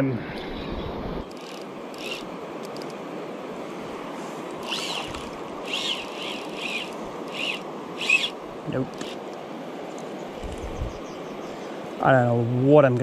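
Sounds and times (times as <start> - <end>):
river water rushing: 0.9 - 12.3
fishing reel drag buzzing: 1.2 - 3.0, 4.5 - 9.3.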